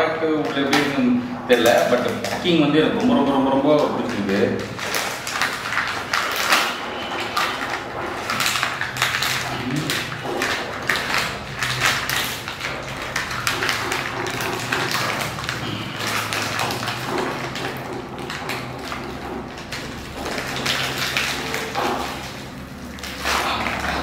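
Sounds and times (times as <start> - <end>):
foil pouch crinkling: 0.3 - 24.0
pouch tearing open: 19.8 - 24.0.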